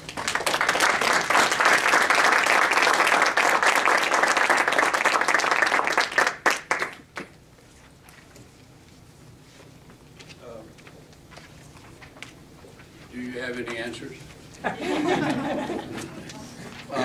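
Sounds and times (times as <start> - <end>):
audience applauding: 0.0 - 7.2.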